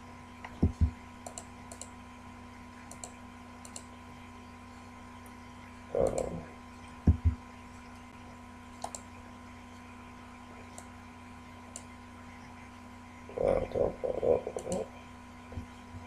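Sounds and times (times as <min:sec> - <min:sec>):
faint electrical hum: 0:00.0 - 0:16.0
computer mouse clicks: 0:00.5 - 0:01.9, 0:02.9 - 0:03.9, 0:06.0 - 0:06.3, 0:08.8 - 0:09.1, 0:10.7 - 0:10.9, 0:14.6 - 0:14.8
dull low thumps: 0:00.6 - 0:01.0, 0:07.1 - 0:07.4.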